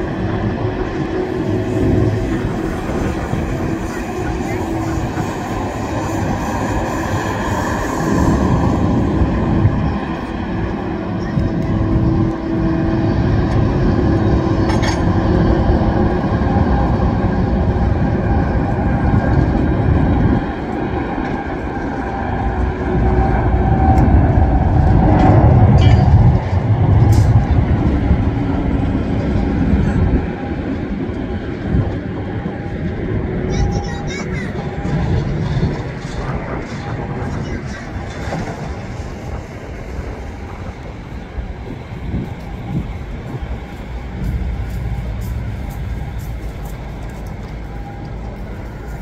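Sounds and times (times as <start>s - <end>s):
jet engines taxiing: 0.0s - 49.0s.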